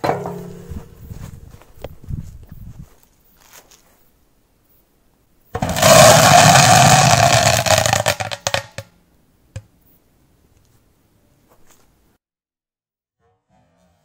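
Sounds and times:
firecracker crackling and hissing: 5.6 - 8.8.

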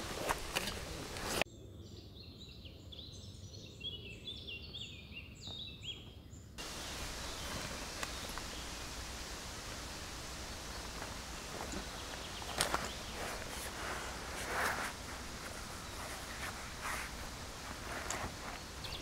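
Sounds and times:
faint clicks and rustles: 0.0 - 1.4, 6.6 - 19.0
small birds chirping: 0.0 - 19.0
steady outdoor hiss: 0.0 - 19.0.

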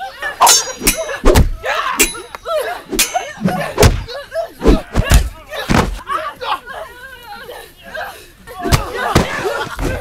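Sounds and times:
punch and kick impacts: 1.2 - 1.6, 3.8 - 6.0.

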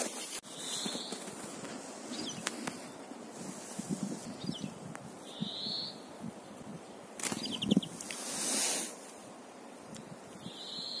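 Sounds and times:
songbirds high calls: 0.1 - 1.3, 2.0 - 3.2, 4.2 - 8.9, 10.4 - 11.0
hiss: 2.5 - 4.3, 7.9 - 9.2.

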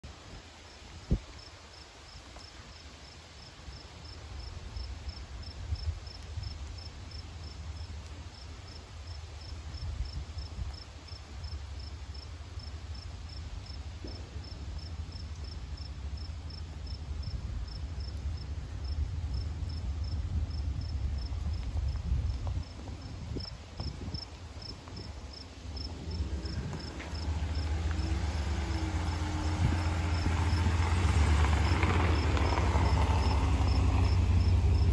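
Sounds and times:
insect chirping: 23.3 - 34.9
truck engine rumbling: 24.5 - 34.9.

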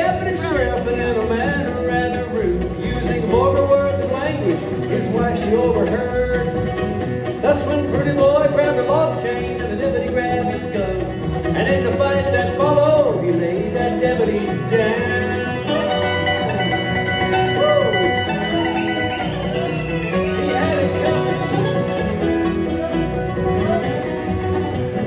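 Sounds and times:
man singing: 0.0 - 18.3, 20.2 - 21.7
guitar: 0.0 - 25.0
upright bass: 0.0 - 25.0.

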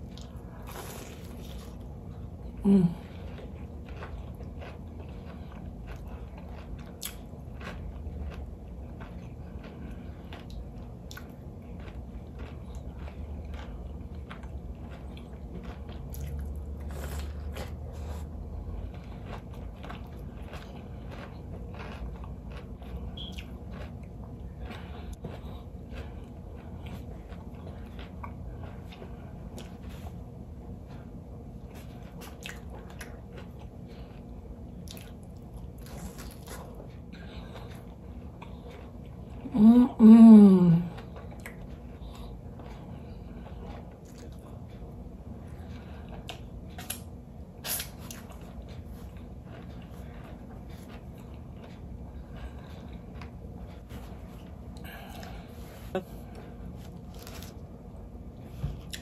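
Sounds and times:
crisp crunchy chewing: 0.0 - 39.5, 56.3 - 59.0.

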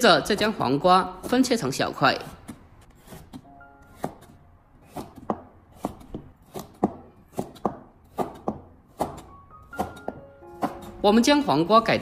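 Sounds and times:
cleaver chopping on wooden board: 2.4 - 11.0.

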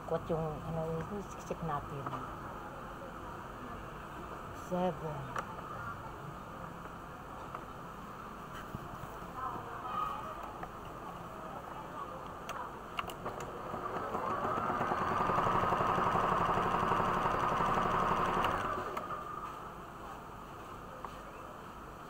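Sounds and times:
sewing machine stitching: 13.2 - 19.0.

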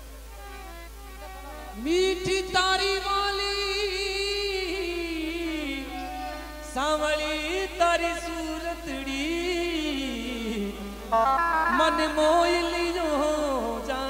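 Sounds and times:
keyboard drone: 10.5 - 13.5
man singing folk song: 11.6 - 14.0.

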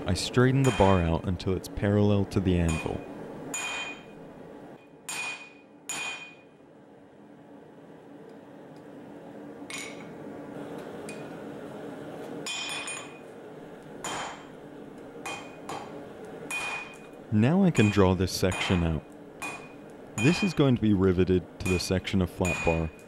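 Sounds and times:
steady low hum: 0.0 - 23.0
hammer striking steel on anvil: 0.6 - 1.1, 2.7 - 4.1, 5.0 - 6.6, 12.4 - 13.2, 14.0 - 14.5, 15.2 - 17.1, 17.7 - 20.6, 21.6 - 23.0.

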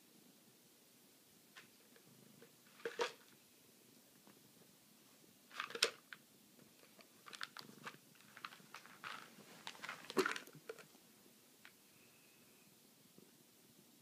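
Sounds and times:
cat crunching dry treats: 5.5 - 6.2, 6.8 - 10.9.

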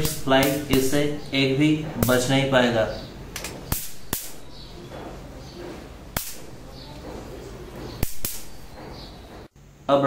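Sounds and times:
electric racket zapping insects: 3.4 - 4.6, 6.1 - 6.6, 8.0 - 8.7.

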